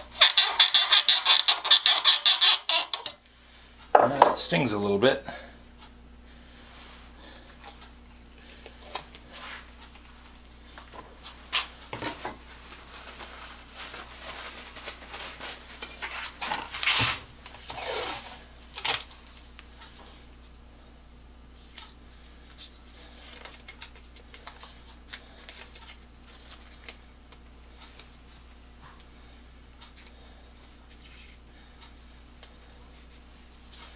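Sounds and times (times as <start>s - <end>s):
rasping: 0.2s - 3.2s.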